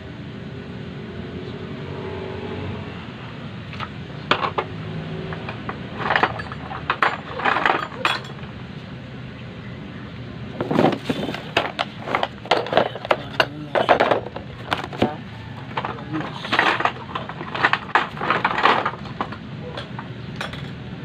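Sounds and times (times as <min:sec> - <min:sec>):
hard objects clattering: 0:03.8 - 0:08.6, 0:10.6 - 0:20.8.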